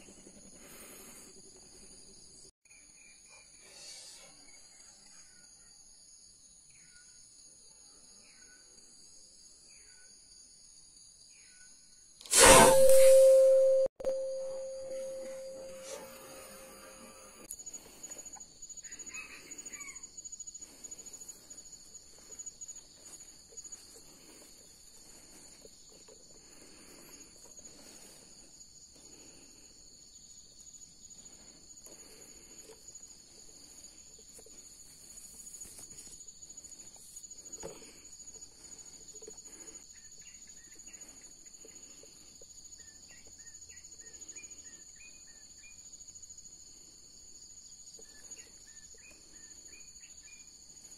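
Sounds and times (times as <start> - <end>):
sharp click: 12.2 - 14.2
high-pitched insect drone: 12.4 - 18.2.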